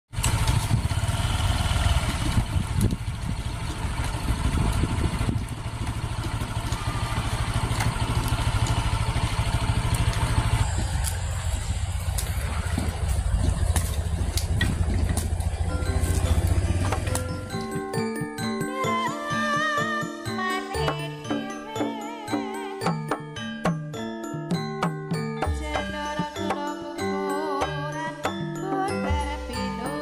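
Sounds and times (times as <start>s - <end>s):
small engine running: 0.2s - 18.7s.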